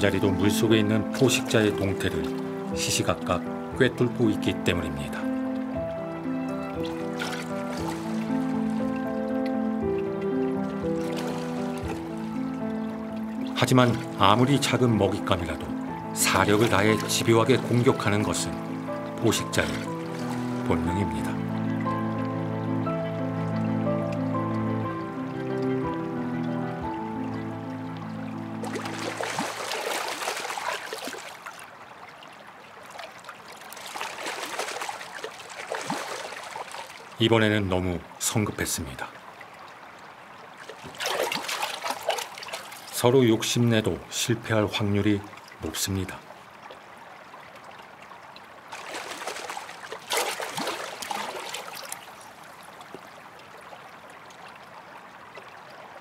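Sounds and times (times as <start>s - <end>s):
water trickling: 0.0s - 56.0s
fish splashing at water surface: 7.0s - 8.4s, 11.0s - 12.2s, 28.6s - 31.7s, 32.9s - 37.2s, 40.6s - 43.0s, 48.7s - 52.3s.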